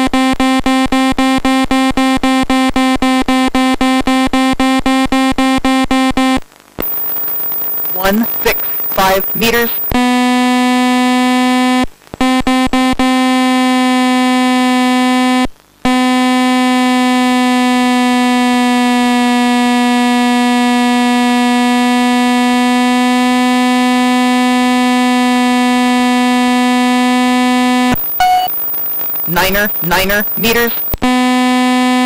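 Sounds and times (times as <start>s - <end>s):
steady electronic buzzing tone: 6.8s - 22.7s, 25.0s - 32.0s.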